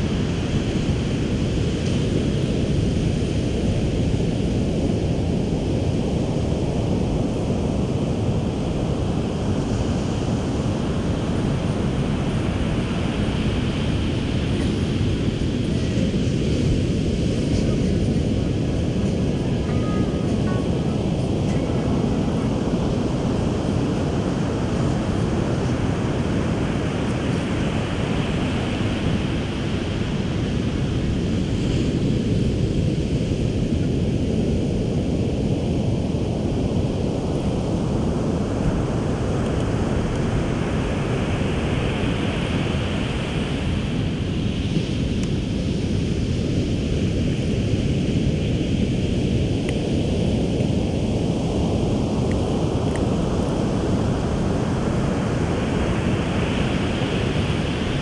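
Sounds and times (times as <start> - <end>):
wind buffeting microphone: 0.0 - 58.0
ocean surf breaking: 8.3 - 33.4.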